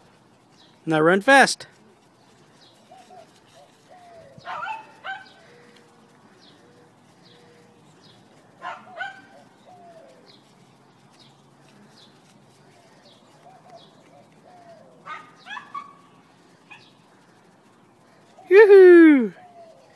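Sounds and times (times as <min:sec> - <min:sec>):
small bird chirping: 0:02.0 - 0:18.5
dove cooing: 0:02.6 - 0:10.7, 0:11.9 - 0:18.7, 0:19.3 - 0:19.9
dog barking: 0:04.5 - 0:05.4, 0:08.6 - 0:09.3, 0:15.1 - 0:16.0.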